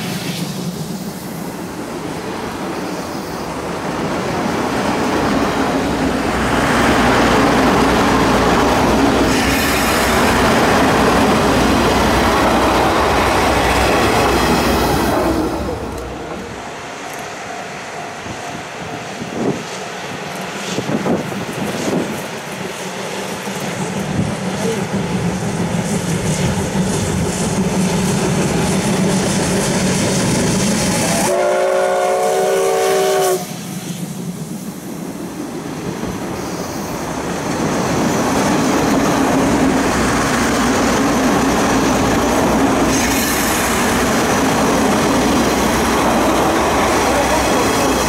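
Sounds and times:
coaches rumbling on rails: 0:00.0 - 0:48.0
steam locomotive running: 0:00.0 - 0:48.0
steam whistle: 0:30.9 - 0:33.7.

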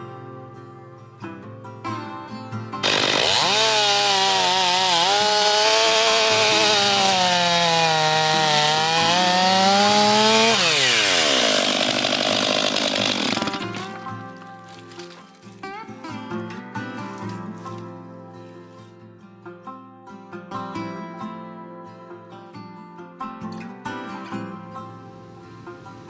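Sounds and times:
chainsaw cutting log: 0:02.8 - 0:15.2.

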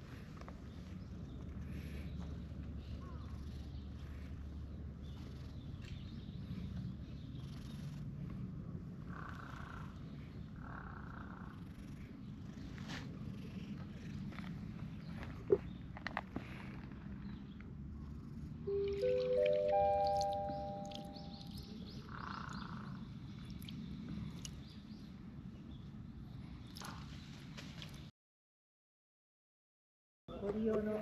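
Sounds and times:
cat purring: 0:00.1 - 0:19.5.

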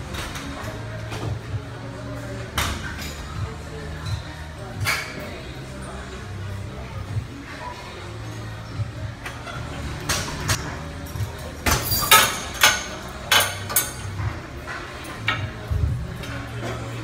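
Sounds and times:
gym equipment clanking: 0:09.2 - 0:16.8.

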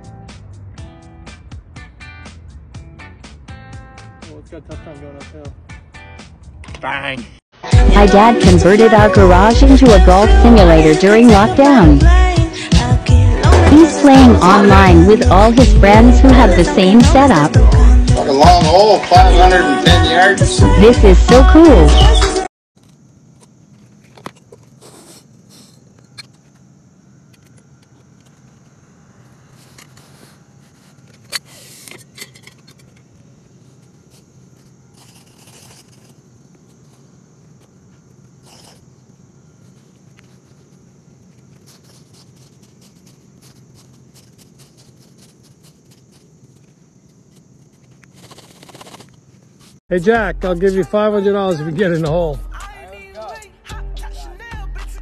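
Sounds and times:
tool scraping soil: 0:22.8 - 0:26.6, 0:29.5 - 0:38.9, 0:39.6 - 0:49.8.

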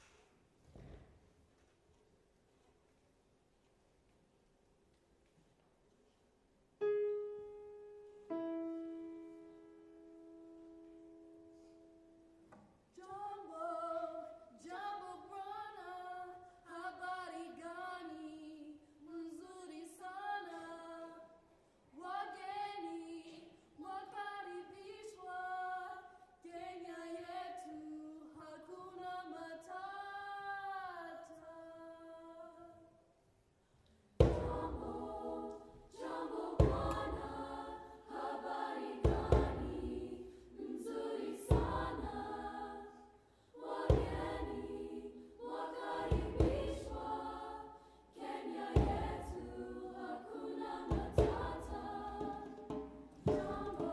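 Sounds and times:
piano notes ringing: 0:06.8 - 0:12.5
women's chorus singing: 0:13.0 - 0:21.4, 0:22.0 - 0:32.8, 0:34.2 - 0:53.9.

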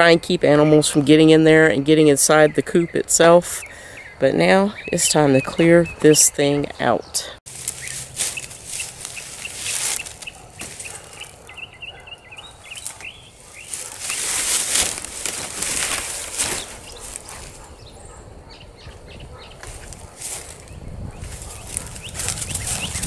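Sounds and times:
bird chirps: 0:02.0 - 0:14.6, 0:15.5 - 0:23.0
rustling of dry weeds and leaves: 0:07.5 - 0:23.0.

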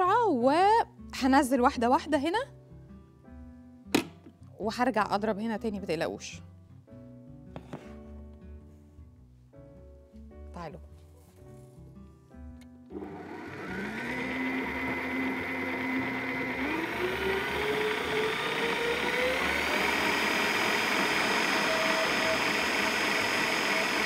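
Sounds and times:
stand mixer motor whining: 0:12.9 - 0:24.0.

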